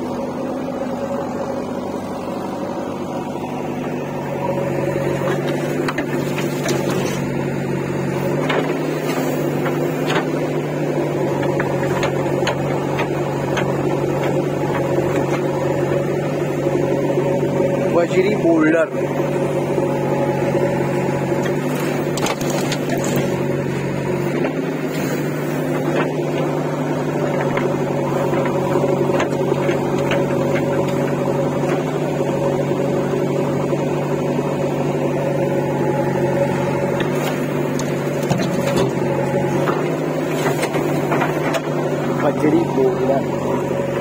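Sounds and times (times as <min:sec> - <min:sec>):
diesel engine running: 0:00.0 - 0:44.0
stones dropping into steel trolley: 0:21.4 - 0:23.4, 0:37.0 - 0:39.0.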